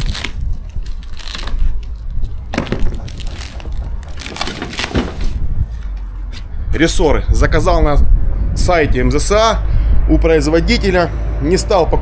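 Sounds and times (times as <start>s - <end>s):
packaging being torn and crunched: 0.0s - 5.4s
wind rumble on microphone: 0.0s - 12.0s.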